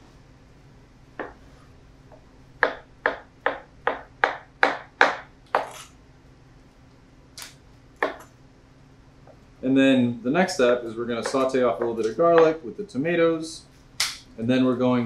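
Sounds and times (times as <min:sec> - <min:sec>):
knife chopping on cutting board: 0:02.6 - 0:05.9, 0:08.0 - 0:08.2.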